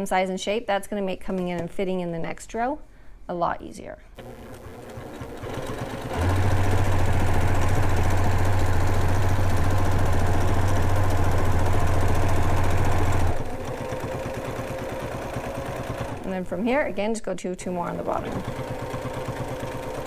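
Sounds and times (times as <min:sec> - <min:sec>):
sewing machine stitching: 0:04.2 - 0:16.9, 0:18.0 - 0:20.0.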